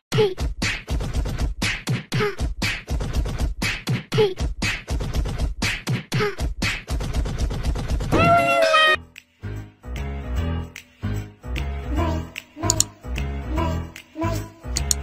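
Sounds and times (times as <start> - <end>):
percussive beat with deep bass: 0.1 - 8.2.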